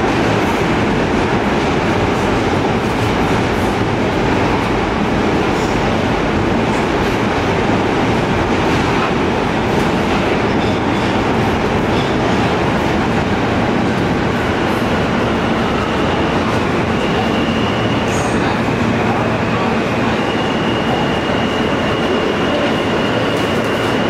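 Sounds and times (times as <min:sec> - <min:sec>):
subway wheels rumbling on rails: 0:00.0 - 0:24.0.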